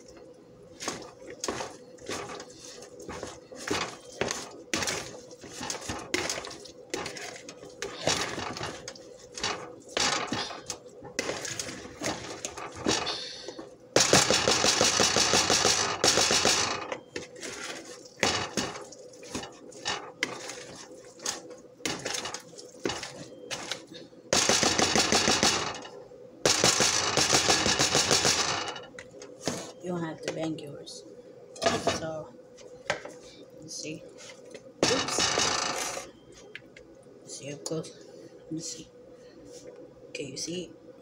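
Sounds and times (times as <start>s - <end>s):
metal spoon stirring in plastic bowl: 0.8s - 23.9s.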